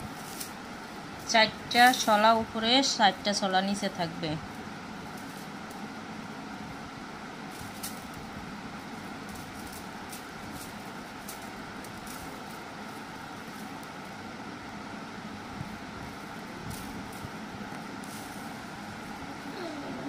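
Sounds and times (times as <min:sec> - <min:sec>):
steady mechanical hum: 0:00.0 - 0:20.0.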